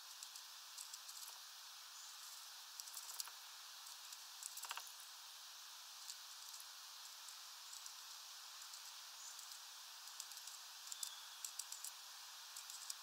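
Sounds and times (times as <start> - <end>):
steady low hiss: 0.0 - 13.0.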